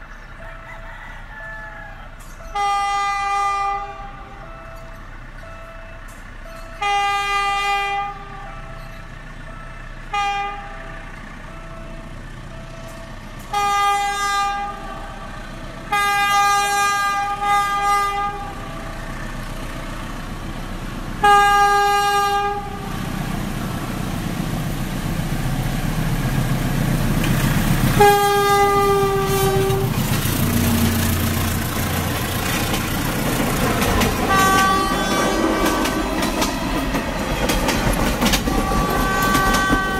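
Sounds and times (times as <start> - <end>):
train engine and wheels: 0.0 - 39.9
train horn blasts: 2.4 - 5.0, 6.8 - 8.7, 10.1 - 11.1, 13.4 - 19.0, 21.2 - 23.0, 27.9 - 32.8, 33.6 - 37.2, 38.2 - 39.9.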